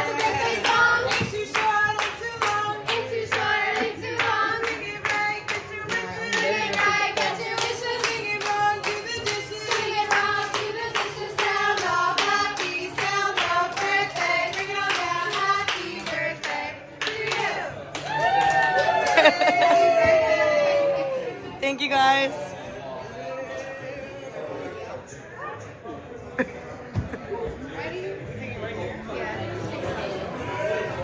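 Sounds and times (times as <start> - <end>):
women singing a chant: 0.0 - 17.7.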